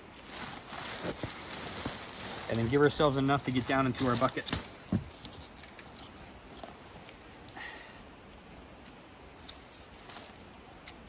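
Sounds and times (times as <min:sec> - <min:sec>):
quiet outdoor ambience: 0:00.0 - 0:11.0
plastic tubing ticks and rustle: 0:03.7 - 0:07.6.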